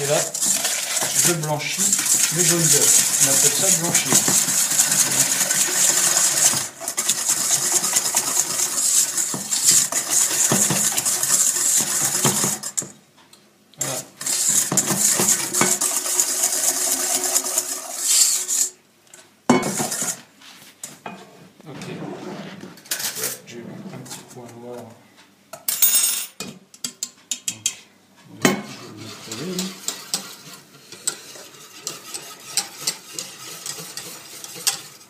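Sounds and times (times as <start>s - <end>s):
wire whisk rattling in metal bowl: 0.0s - 12.9s, 13.8s - 18.6s, 29.0s - 35.0s.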